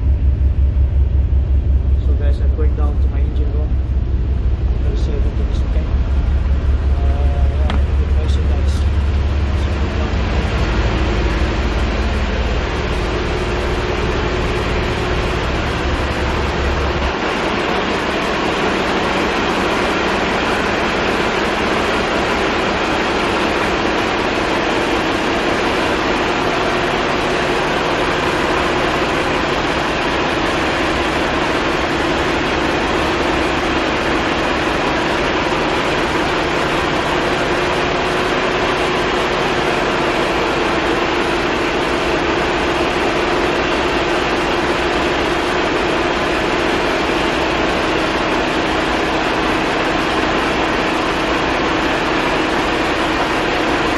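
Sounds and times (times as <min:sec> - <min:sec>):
heavy low rumble: 0:00.0 - 0:31.8
diesel engine idling: 0:00.0 - 0:53.9.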